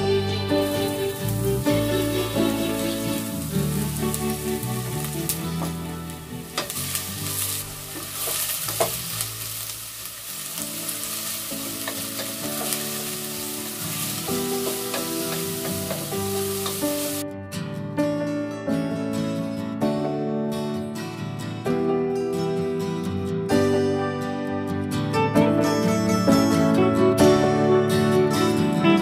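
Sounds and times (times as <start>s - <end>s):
leeks sizzling in a pot: 0.0s - 17.2s
soft background music: 0.0s - 29.0s.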